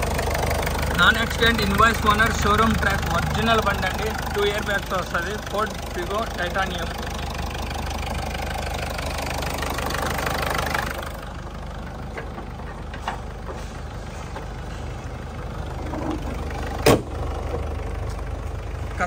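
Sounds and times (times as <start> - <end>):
car engine idling: 0.0 - 19.0
loud sharp thump: 16.8 - 17.1.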